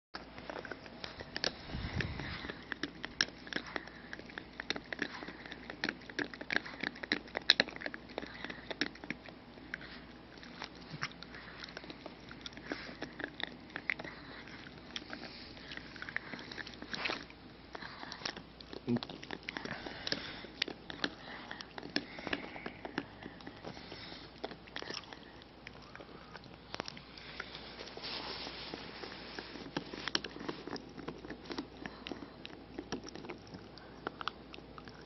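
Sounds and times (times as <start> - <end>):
dog gnawing on bone: 0.2 - 35.0.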